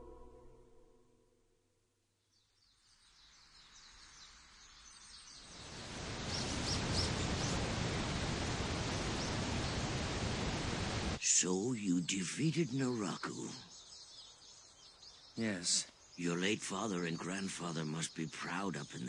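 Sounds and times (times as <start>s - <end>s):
music: 0.0s - 1.5s
birds chirping: 3.2s - 19.0s.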